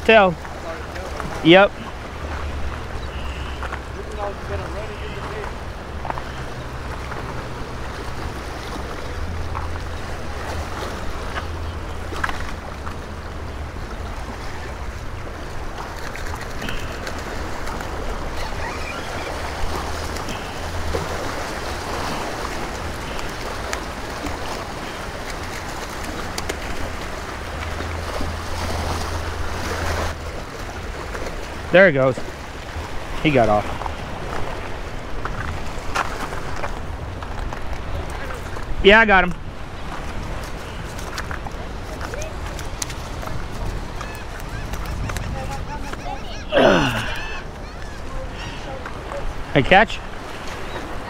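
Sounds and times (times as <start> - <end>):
waves splashing against boulders: 0.0 - 51.0
wind rumble on microphone: 39.4 - 46.2.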